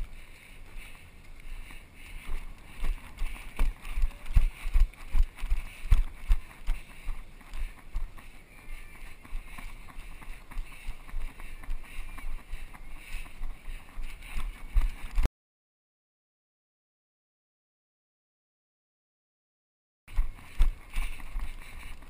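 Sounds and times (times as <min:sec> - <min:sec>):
running footsteps thumping: 0:01.7 - 0:15.3.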